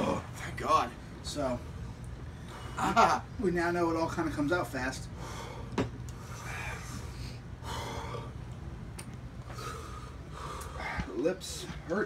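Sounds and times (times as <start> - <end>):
men breathing hard: 5.1 - 8.4, 9.4 - 11.2.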